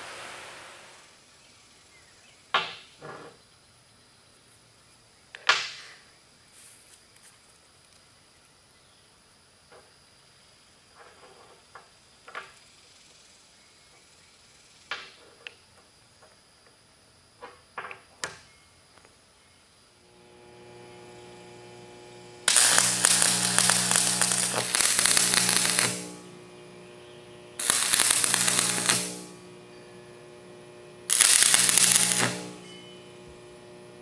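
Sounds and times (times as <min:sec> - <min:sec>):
electrical hum: 0:20.0 - 0:34.0
welding arc crackling: 0:20.1 - 0:34.0.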